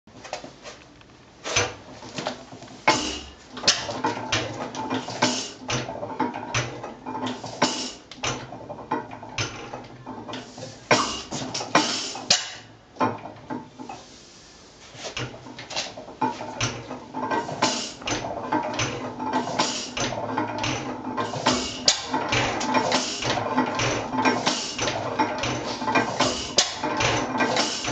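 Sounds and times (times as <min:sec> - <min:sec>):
engine mechanism metallic clicks: 0:02.9 - 0:13.7, 0:15.2 - 0:27.9.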